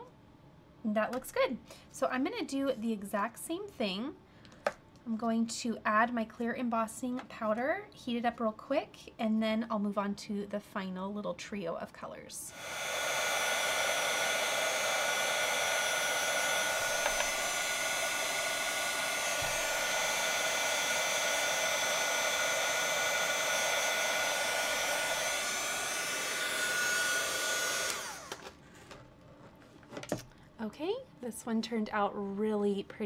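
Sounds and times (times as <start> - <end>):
heat embossing tool fan whine: 12.4 - 29.0.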